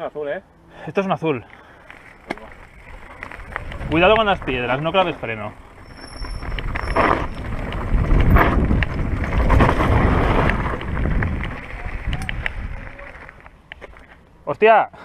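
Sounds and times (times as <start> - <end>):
bike rattling clicks: 1.4 - 14.2
tyres rolling over loose stones: 1.6 - 14.1
wind rushing over microphone: 2.6 - 13.4.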